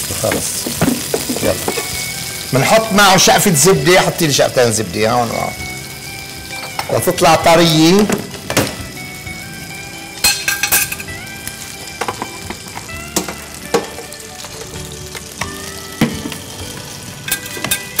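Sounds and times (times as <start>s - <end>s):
food sizzling in a pan: 0.0s - 18.0s
kitchen utensils clicking: 10.2s - 11.1s, 17.2s - 18.0s.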